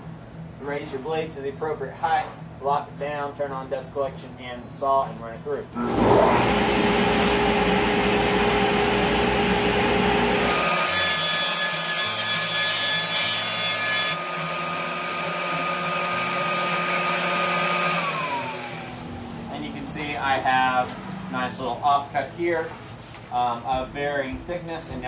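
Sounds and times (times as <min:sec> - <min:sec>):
dust collector running: 0:05.8 - 0:10.9, 0:14.2 - 0:21.7
table saw cutting wood: 0:05.8 - 0:21.5.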